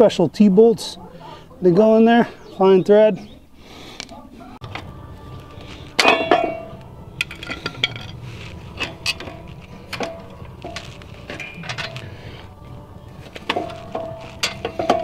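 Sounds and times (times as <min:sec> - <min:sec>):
metal tool clinking on metal: 0:06.0 - 0:08.2, 0:08.8 - 0:12.0, 0:13.4 - 0:15.0.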